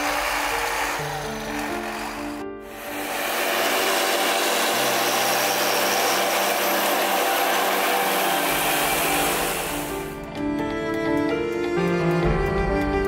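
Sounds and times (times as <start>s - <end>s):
mower whirring: 0.0s - 10.3s.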